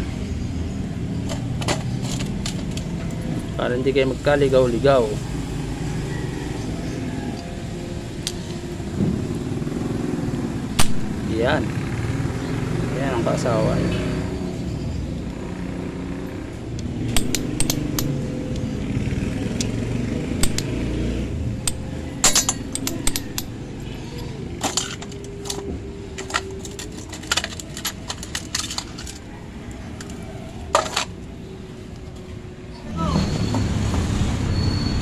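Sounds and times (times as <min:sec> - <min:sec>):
metal gears clinking: 0:01.2 - 0:03.5, 0:17.0 - 0:18.3, 0:20.4 - 0:20.7, 0:21.5 - 0:29.3, 0:29.9 - 0:31.3.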